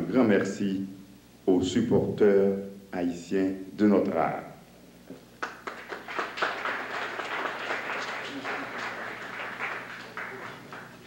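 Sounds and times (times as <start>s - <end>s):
low electrical hum: 0.0s - 11.0s
audience applauding: 5.4s - 11.0s.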